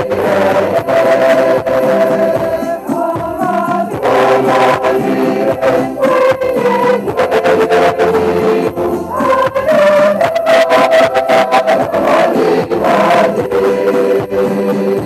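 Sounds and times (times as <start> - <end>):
church choir singing a hymn: 0.0 - 15.0.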